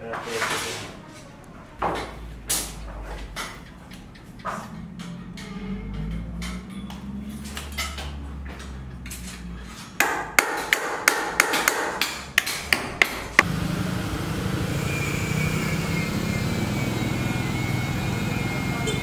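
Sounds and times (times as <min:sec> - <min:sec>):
hammer striking metal: 0:10.0 - 0:13.5
faint high whine: 0:14.5 - 0:19.0.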